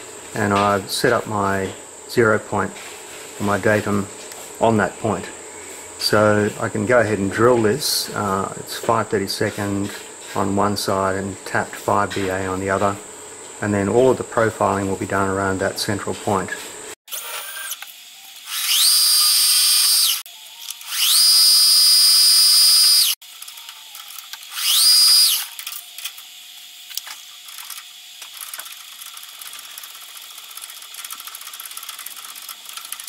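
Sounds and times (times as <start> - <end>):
milling machine spindle whine: 17.4 - 33.0
quiet steady hum with ticks: 26.9 - 33.0.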